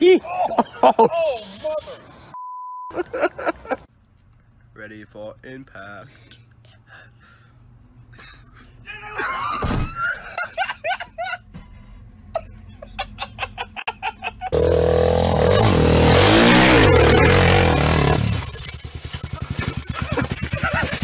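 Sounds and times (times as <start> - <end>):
person crying out: 8.8 - 10.0
thud: 9.6 - 10.1
motorbike engine revving: 14.5 - 21.0
laughter in short bursts: 19.0 - 21.0.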